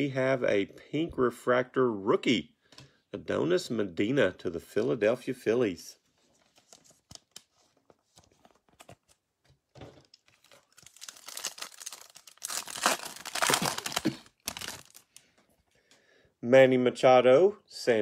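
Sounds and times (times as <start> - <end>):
foil wrapper tearing and crinkling: 10.3 - 15.2.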